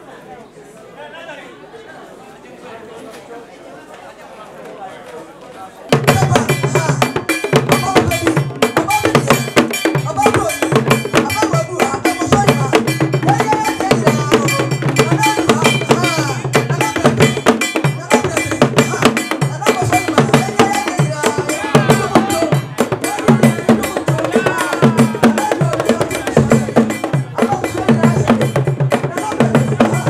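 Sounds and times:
voices: 0.0 - 30.0
drums struck with sticks: 5.9 - 30.0.

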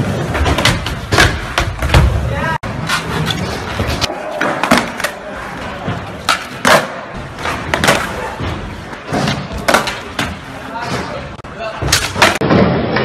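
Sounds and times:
skateboard clacks and slams: 0.0 - 2.3, 5.8 - 11.1.

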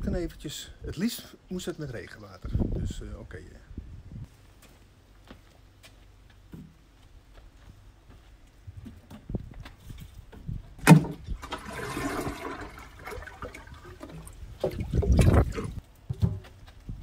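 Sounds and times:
water rushing into watering can: 10.8 - 15.8.

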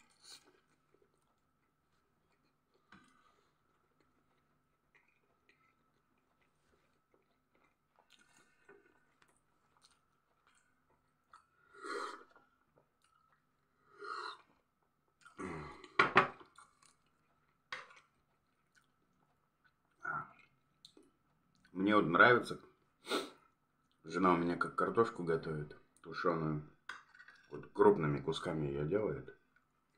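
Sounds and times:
person chewing: 0.0 - 21.7.

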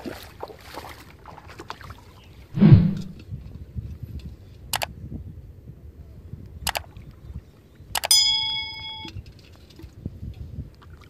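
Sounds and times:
faint splashing: 0.0 - 3.2.

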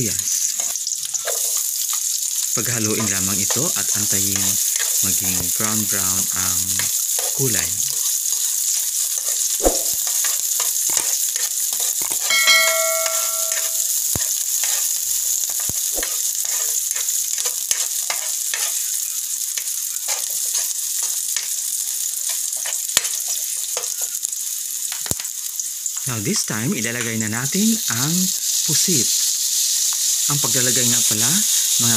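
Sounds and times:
garlic and onion sizzling in oil: 0.0 - 31.9
metal spatula scraping pan: 8.2 - 15.0, 16.0 - 19.0
short metallic ring: 12.3 - 13.8.

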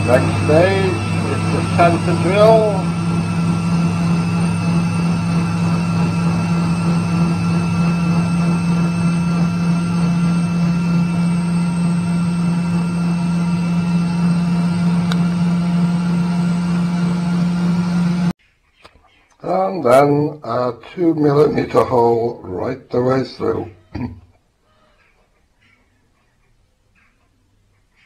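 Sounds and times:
mini lathe motor humming: 0.0 - 18.3.

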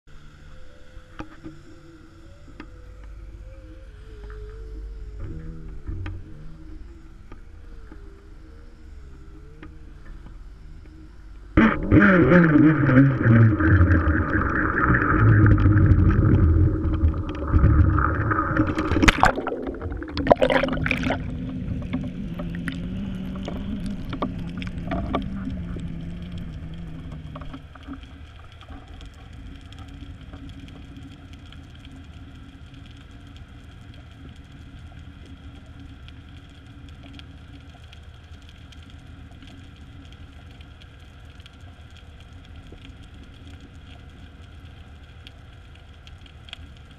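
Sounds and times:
underwater drone: 0.1 - 46.9
muffled rumble: 9.4 - 31.3.

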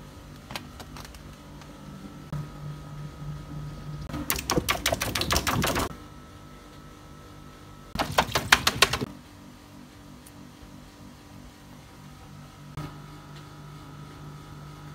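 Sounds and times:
low hum: 0.0 - 14.9
hand slapping inflatable skin: 8.0 - 9.1.

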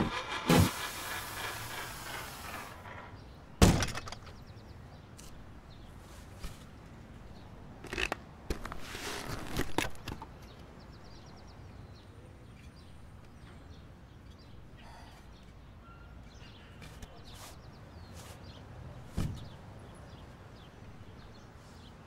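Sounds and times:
faint bird chirps: 11.2 - 18.6.

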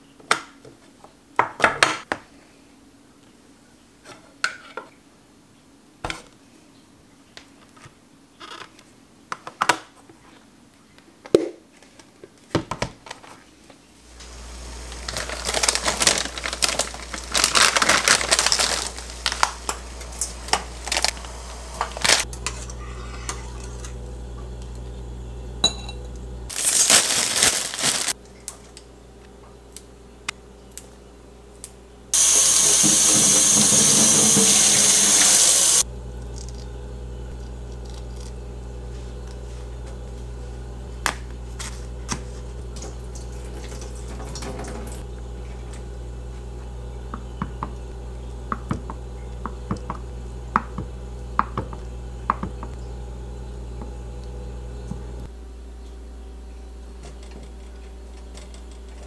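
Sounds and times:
plastic packaging crinkling: 14.2 - 22.3, 26.5 - 28.2.

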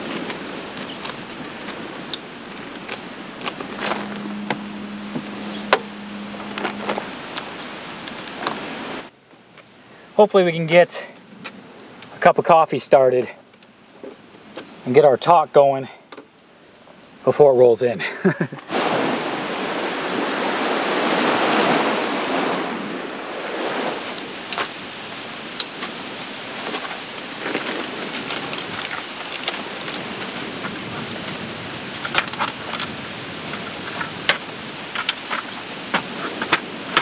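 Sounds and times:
wind rushing: 18.7 - 25.0.

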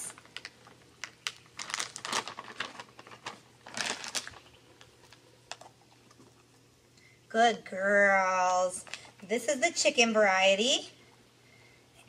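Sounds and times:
plastic bag crinkling: 0.0 - 5.7.

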